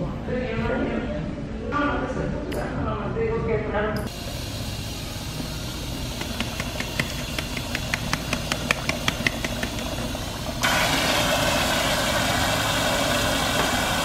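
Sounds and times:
tap water running into basin: 0:04.8 - 0:14.0.

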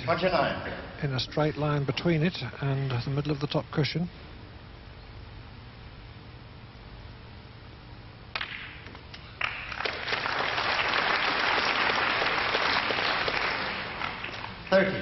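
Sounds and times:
audience applause: 0:09.4 - 0:14.8.

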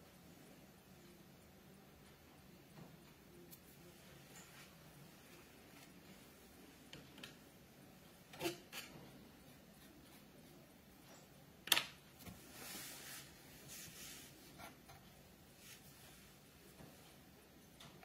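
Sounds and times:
soft rustling: 0:12.2 - 0:17.4.

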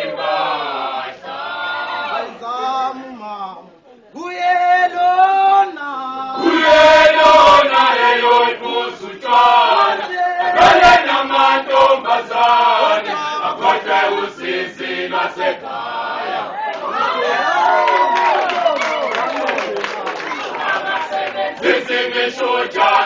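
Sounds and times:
male choir singing a cappella: 0:00.0 - 0:03.0, 0:04.4 - 0:16.6, 0:20.6 - 0:23.0.

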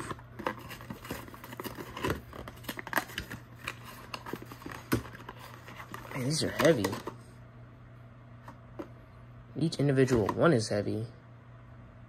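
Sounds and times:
cardboard packaging rustling: 0:00.0 - 0:07.2.

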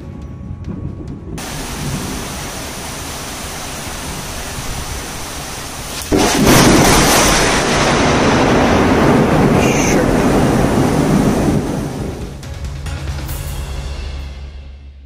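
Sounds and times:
heavy rain: 0:01.4 - 0:12.5.

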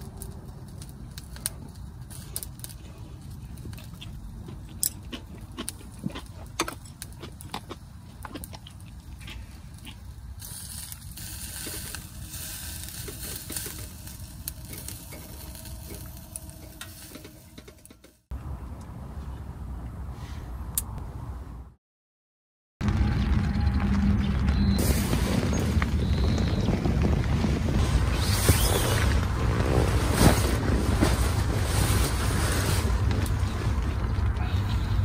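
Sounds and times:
steady low rumble: 0:00.0 - 0:21.8, 0:22.8 - 0:35.0
meat sizzling over charcoal: 0:08.8 - 0:18.2.

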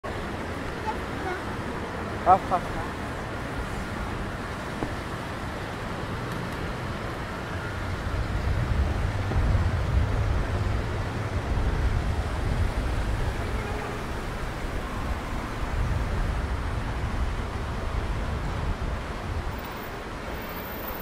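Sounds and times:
distant traffic: 0:00.0 - 0:21.0.

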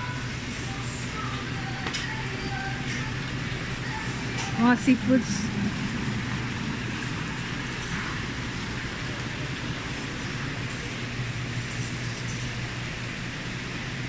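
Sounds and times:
refrigeration machine hum: 0:00.0 - 0:14.0.

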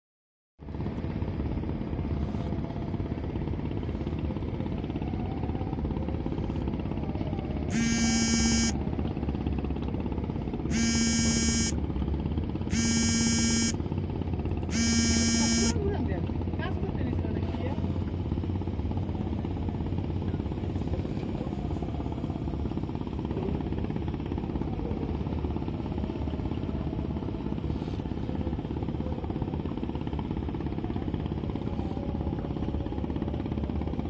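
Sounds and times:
ship's horn blasts: 0:07.7 - 0:08.8, 0:10.7 - 0:11.8, 0:12.7 - 0:13.8, 0:14.7 - 0:15.8.

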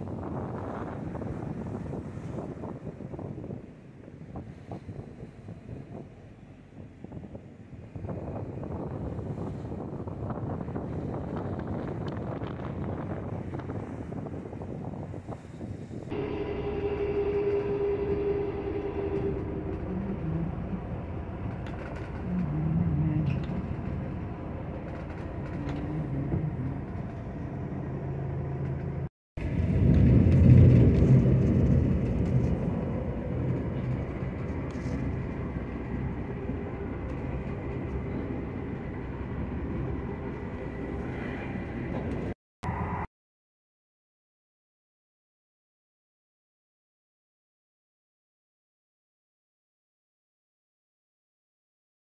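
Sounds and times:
boat engine running: 0:00.0 - 0:42.3
water noise: 0:00.0 - 0:43.1
wind: 0:00.0 - 0:43.1.

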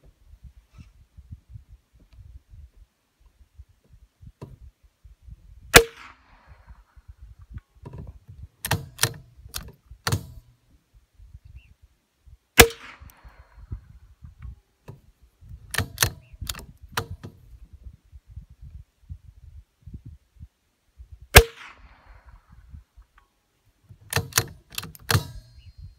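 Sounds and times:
rifle shot with echo: 0:05.7 - 0:06.9, 0:12.6 - 0:13.7, 0:21.4 - 0:22.6
rifle bolt metallic clicks: 0:08.6 - 0:10.5, 0:15.7 - 0:17.4, 0:24.1 - 0:25.6.

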